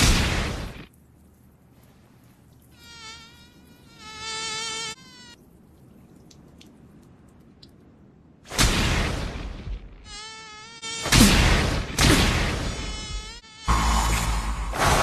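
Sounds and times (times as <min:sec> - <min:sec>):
mosquito whining buzz: 0:12.7 - 0:14.1.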